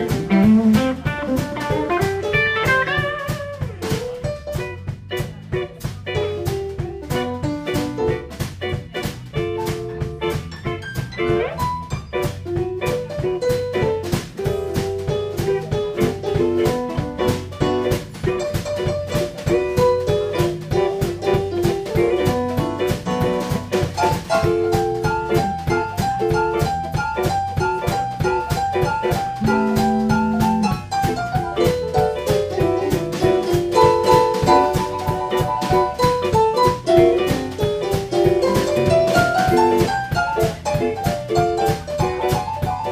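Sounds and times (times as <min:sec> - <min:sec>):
drum kit beat: 0:00.0 - 0:42.9
electric guitar: 0:00.0 - 0:42.9
organ playing chords: 0:29.4 - 0:31.0.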